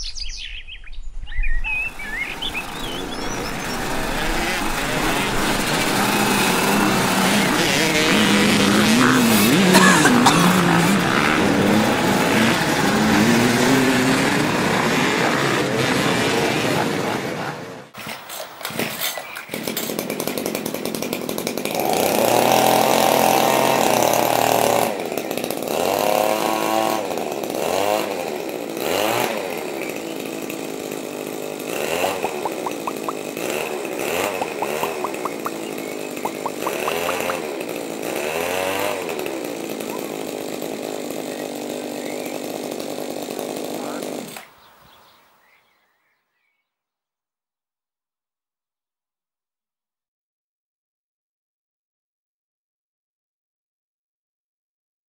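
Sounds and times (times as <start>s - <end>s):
two-stroke engine revving: 2.0s - 44.6s.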